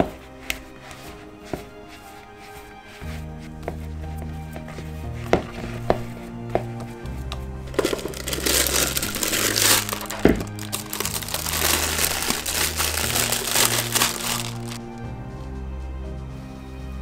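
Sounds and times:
background music: 0:00.0 - 0:17.0
plastic bag crinkling: 0:07.8 - 0:14.8.

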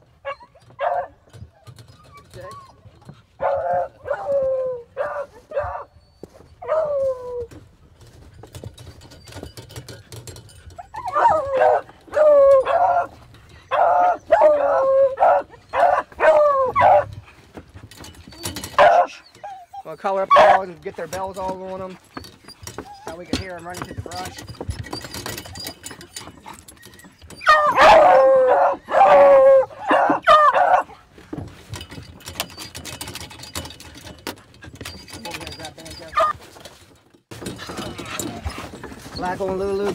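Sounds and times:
dogs howling and yelping: 0:00.2 - 0:07.6, 0:10.7 - 0:17.2, 0:18.4 - 0:20.7, 0:21.4 - 0:24.4, 0:26.6 - 0:31.0.

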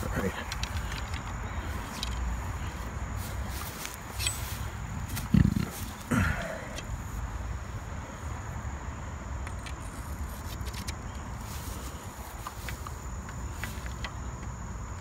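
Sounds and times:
high insect drone: 0:00.0 - 0:15.0
microphone handling rumble: 0:03.6 - 0:06.9.

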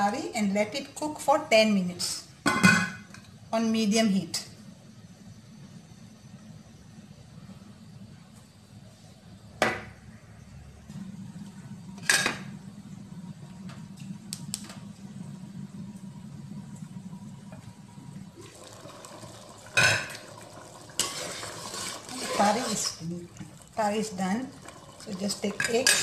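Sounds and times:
low steady hum: 0:00.0 - 0:26.0
curry simmering hiss: 0:15.3 - 0:26.0.

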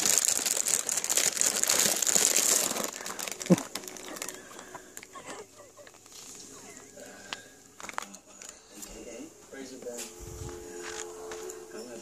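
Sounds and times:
plastic wrapper crinkling: 0:00.0 - 0:08.7.

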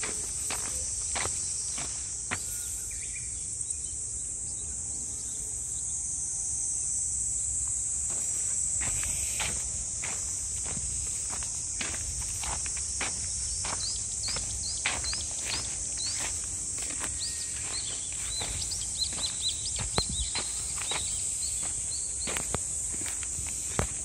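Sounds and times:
footsteps through a field: 0:00.0 - 0:03.1, 0:07.5 - 0:24.0
high insect drone: 0:00.0 - 0:24.0
bird chirping: 0:13.7 - 0:22.4.

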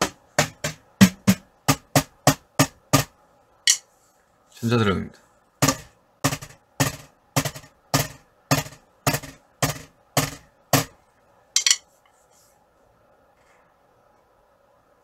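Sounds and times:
drumstick tapping a pad: 0:00.0 - 0:03.8, 0:05.6 - 0:11.0, 0:11.6 - 0:11.8.

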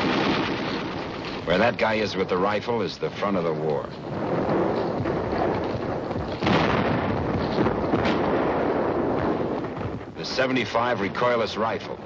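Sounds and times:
gunfire: 0:00.0 - 0:01.8, 0:04.1 - 0:11.2
explosions: 0:00.0 - 0:02.6, 0:04.0 - 0:12.0.

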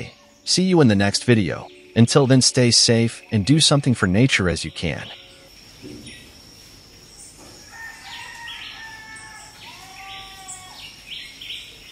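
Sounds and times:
short bird calls: 0:08.2 - 0:11.9.

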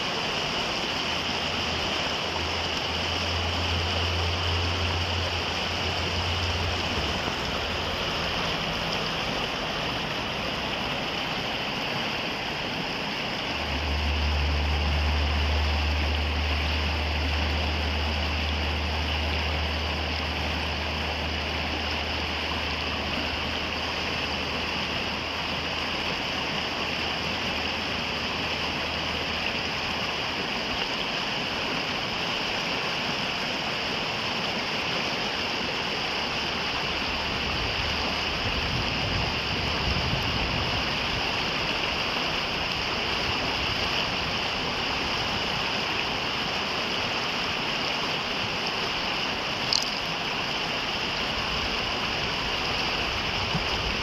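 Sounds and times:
river water rushing over rocks: 0:00.0 - 0:54.0
low rumble: 0:01.6 - 0:10.9, 0:13.4 - 0:23.7.

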